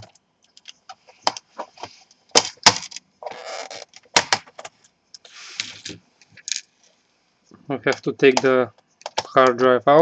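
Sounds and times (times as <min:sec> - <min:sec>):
short scraping rub: 0:05.2 - 0:06.0.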